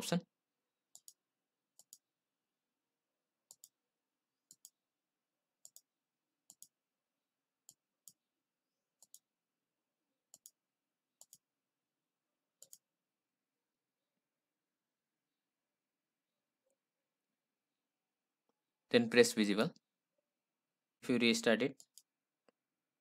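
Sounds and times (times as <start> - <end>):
computer mouse clicking: 0.9 - 2.1, 3.4 - 3.8, 4.5 - 4.8, 5.6 - 6.8, 9.0 - 9.3, 10.3 - 10.6, 11.2 - 11.5, 12.6 - 12.9, 21.7 - 22.6.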